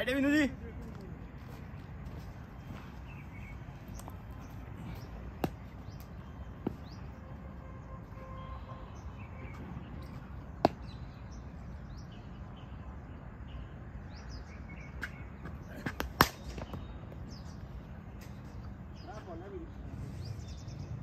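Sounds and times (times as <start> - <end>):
birds chirping: 0.0 - 21.0
outdoor background noise: 0.0 - 21.0
cricket bat striking ball: 10.6 - 10.9, 15.8 - 16.8.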